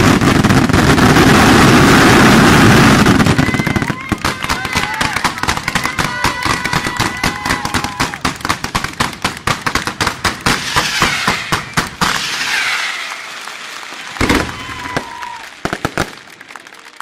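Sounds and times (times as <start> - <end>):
fireworks whistling: 0.0 - 16.2
fireworks hissing crackle: 0.0 - 16.6
fireworks bangs: 0.0 - 16.9.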